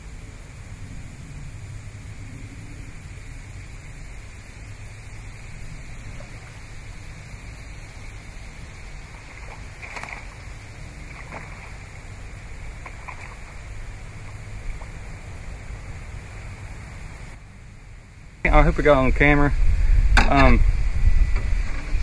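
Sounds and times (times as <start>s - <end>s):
wind buffeting microphone: 18.4s - 22.0s.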